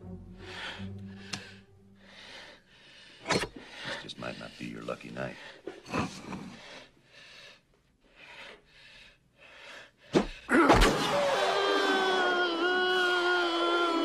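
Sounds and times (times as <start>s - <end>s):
tense breathing: 0.2s - 10.5s
man screaming: 11.0s - 14.0s.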